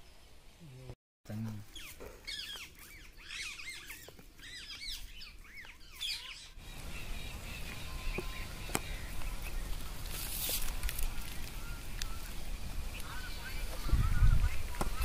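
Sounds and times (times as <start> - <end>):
small birds chirping: 0.0 - 15.0
wind rumble on microphone: 10.7 - 15.0.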